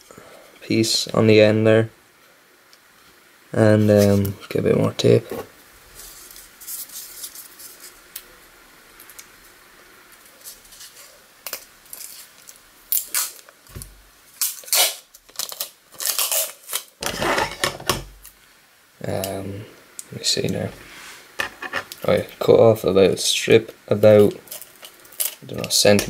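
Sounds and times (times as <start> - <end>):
packing tape ripping off roll: 10.5 - 18.3, 24.5 - 25.8.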